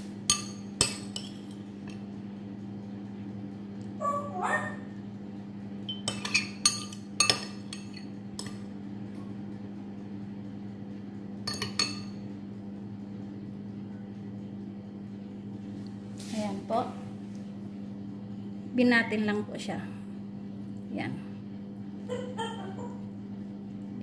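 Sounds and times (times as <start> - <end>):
low steady hum: 0.0 - 24.0
spoon clinking against ceramic bowl: 0.3 - 1.6, 5.9 - 8.6, 11.5 - 12.2.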